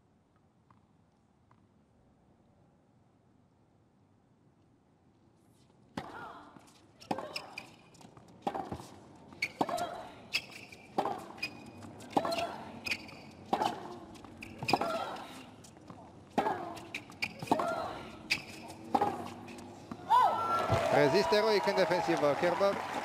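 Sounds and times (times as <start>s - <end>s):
tennis ball hit by rackets: 18.4s - 20.0s.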